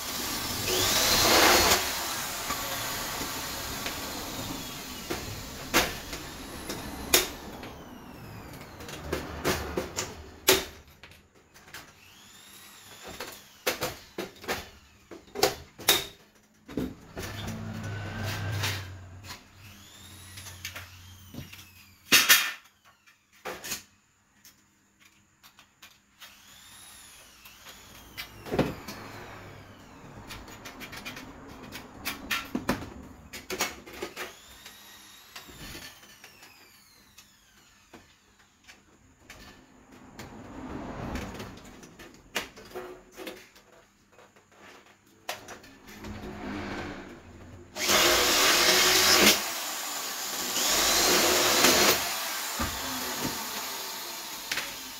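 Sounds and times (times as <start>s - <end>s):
metal sliding and scraping: 17.0s - 19.6s, 45.5s - 47.8s.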